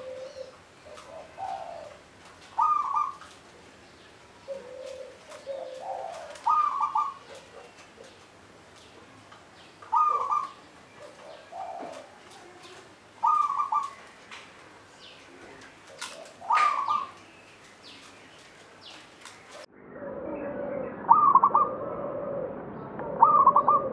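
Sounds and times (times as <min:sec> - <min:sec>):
faint low dove coo: 0:00.0 - 0:03.7, 0:04.4 - 0:08.2, 0:09.9 - 0:14.0, 0:15.1 - 0:17.2, 0:19.5 - 0:23.9
dove cooing song: 0:00.0 - 0:09.2, 0:09.8 - 0:18.2, 0:20.5 - 0:23.9.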